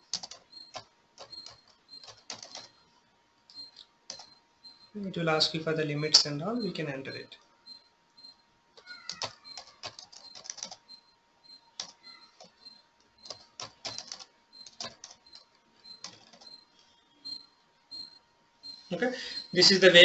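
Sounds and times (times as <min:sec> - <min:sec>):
computer keyboard typing: 0:00.0 - 0:02.8, 0:03.5 - 0:04.9, 0:07.7 - 0:18.8.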